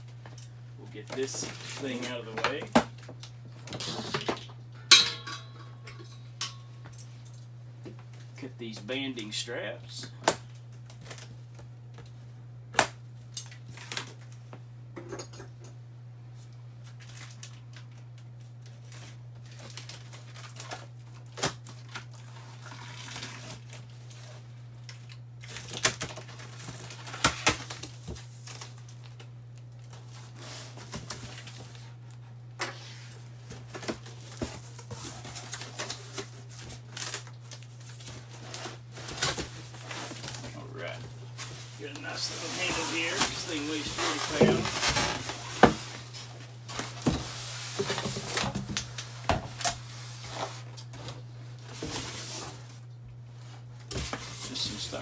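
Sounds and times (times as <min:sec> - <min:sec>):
steady low hum: 0:00.0 - 0:13.6
cardboard flaps rustling: 0:33.4 - 0:49.6.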